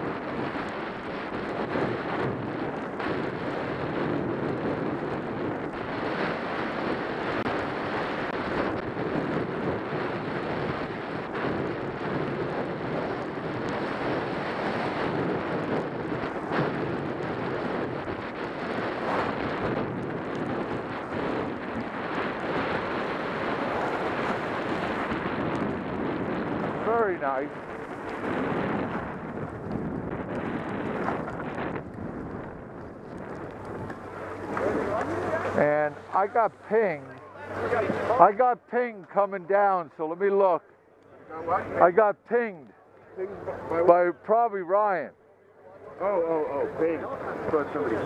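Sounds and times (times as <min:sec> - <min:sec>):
wind rushing over microphone: 0:00.0 - 0:45.2, 0:45.8 - 0:48.0
skis scraping on snow: 0:13.8 - 0:25.5, 0:26.3 - 0:38.3.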